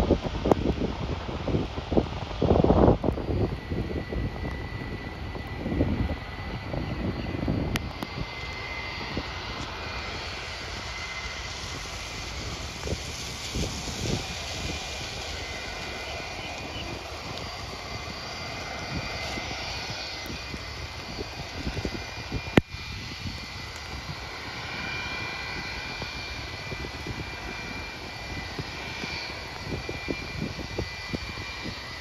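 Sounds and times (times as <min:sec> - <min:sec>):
distant jet engines rumbling: 0:00.0 - 0:32.0
wind buffeting microphone: 0:00.0 - 0:32.0
pouring rain hiss: 0:07.5 - 0:32.0.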